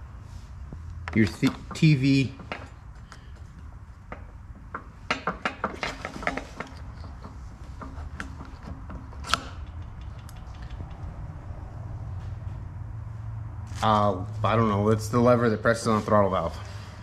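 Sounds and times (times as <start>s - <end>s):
small metal parts clicking: 4.1s - 11.2s.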